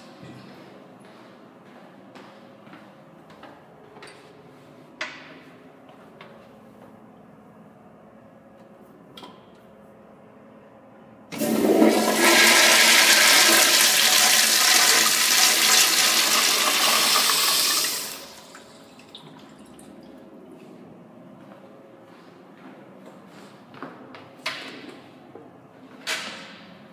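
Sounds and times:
toilet flushing water rush: 11.3 - 19.7.

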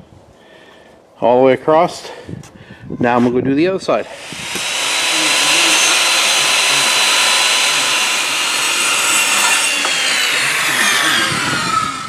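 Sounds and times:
circular saw cutting wood: 3.8 - 12.0.

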